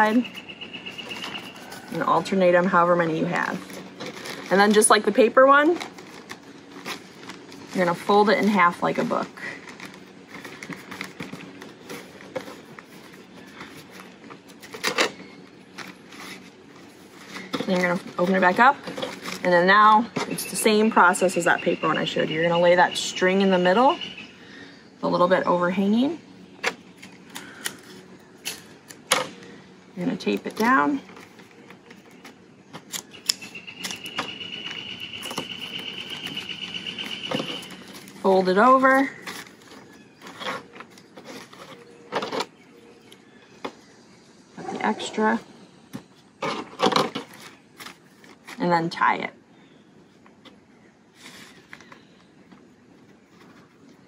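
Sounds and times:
paper bags rustling and crinkling: 0:00.0 - 0:20.6, 0:30.1 - 0:42.6, 0:46.4 - 0:48.6.

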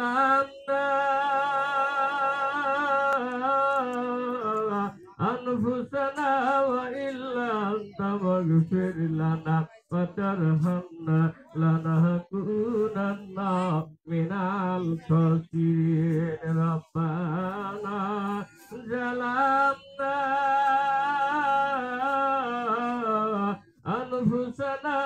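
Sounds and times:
man chanting unaccompanied: 0:00.0 - 0:25.0.

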